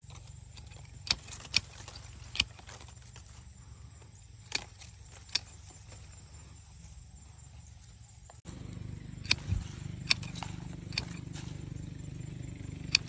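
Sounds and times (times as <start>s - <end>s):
pruning shears snipping: 0.0s - 3.5s, 4.3s - 6.1s, 8.6s - 11.8s, 12.8s - 13.0s.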